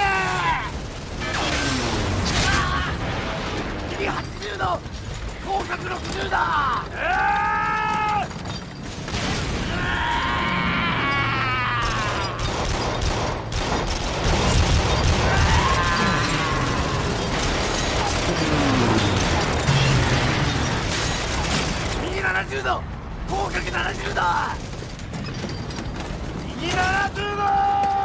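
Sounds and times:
anti-aircraft gunfire and blasts: 0.0 - 6.4, 11.8 - 26.7.

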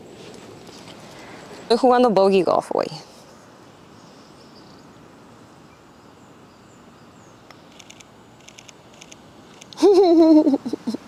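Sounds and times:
low outdoor hiss: 0.0 - 11.0
high insect chirping: 3.9 - 10.9.

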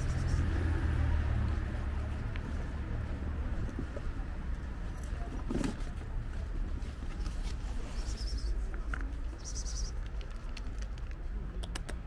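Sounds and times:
sharp clicks: 10.0 - 12.0.

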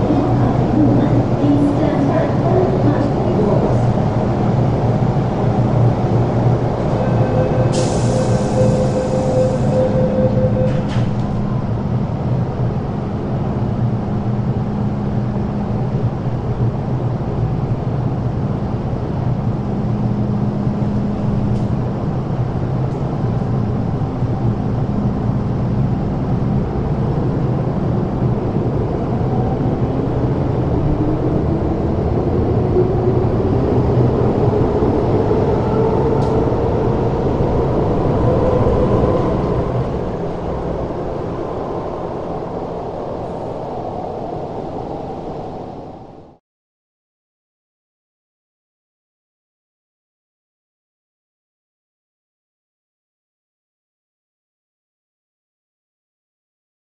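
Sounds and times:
electric train rumble and hum: 0.0 - 46.4.

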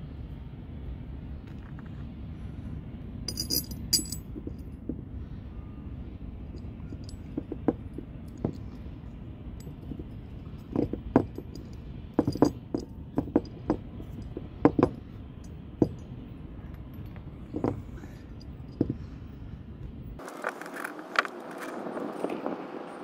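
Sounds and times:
metal bolts clicking and clinking: 3.3 - 4.7, 6.6 - 8.8, 9.6 - 19.0.

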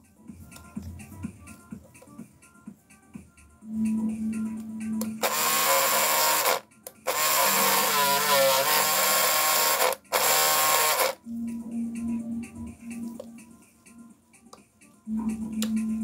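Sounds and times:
shaver motor buzzing: 5.2 - 11.2.

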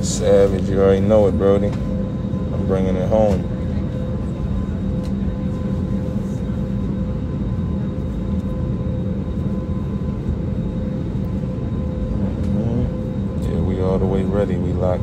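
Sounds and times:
airliner cabin rumble: 0.0 - 15.0.

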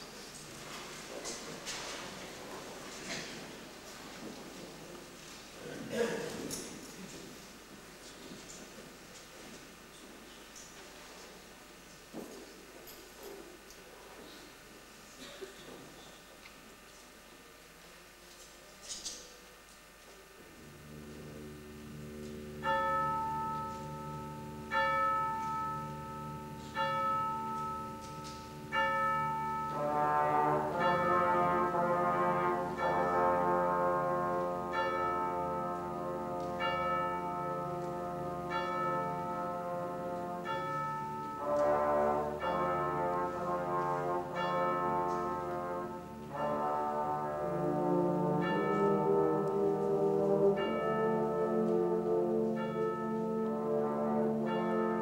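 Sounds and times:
brass wind band chords: 20.6 - 55.0.

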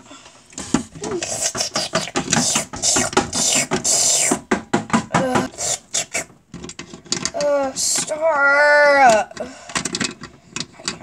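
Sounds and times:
person making hissing mouth noises: 1.0 - 4.6, 5.2 - 6.4.

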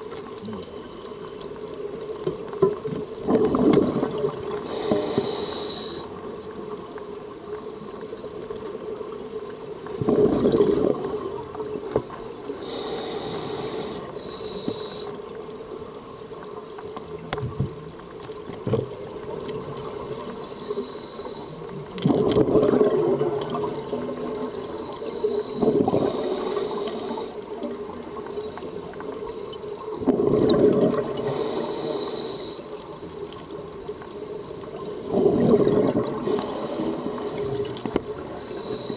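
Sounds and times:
exhaled air bubbling: 2.6 - 6.1, 9.8 - 15.2, 21.3 - 29.2, 29.8 - 32.7, 34.5 - 38.9
regulator breathing hiss: 4.5 - 6.2, 12.1 - 15.3, 20.0 - 21.8, 24.4 - 27.6, 31.1 - 32.8, 36.2 - 38.9.

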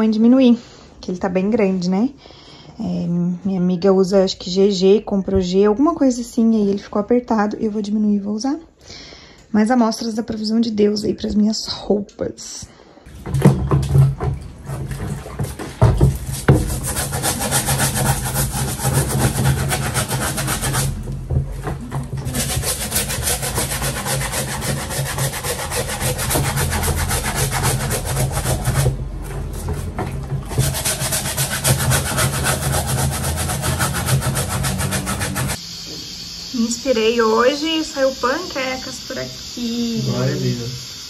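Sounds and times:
brush scrubbing a sneaker: 14.6 - 21.1, 22.1 - 35.6.

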